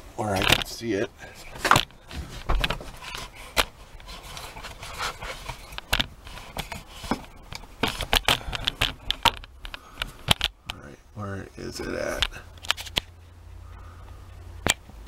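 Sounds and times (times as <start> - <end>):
handling clicks and knocks: 0.3 - 0.8, 1.5 - 10.8
camera rubbing against panel: 1.3 - 8.2.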